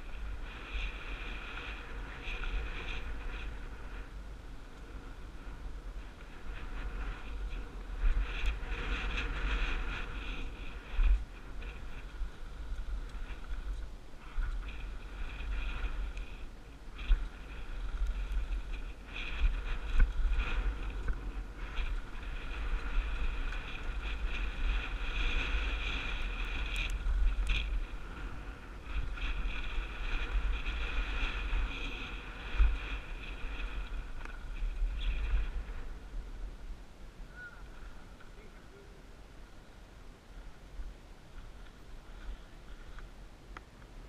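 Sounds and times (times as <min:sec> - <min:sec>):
wind on microphone: 0:00.0 - 0:44.0
bike rattle: 0:06.4 - 0:35.4.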